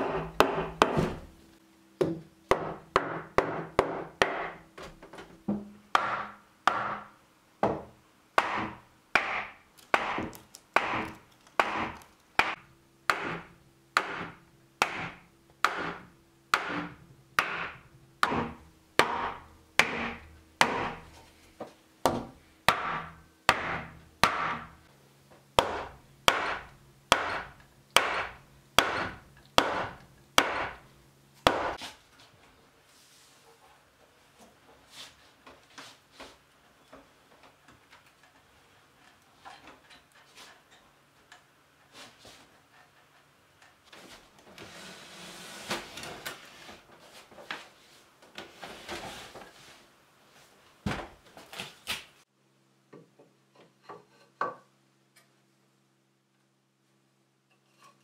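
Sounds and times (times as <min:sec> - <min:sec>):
wooden mallet striking timber: 0:00.0 - 0:01.2, 0:02.0 - 0:04.6, 0:05.5 - 0:21.0, 0:22.0 - 0:24.7, 0:25.6 - 0:30.8, 0:31.5 - 0:31.8.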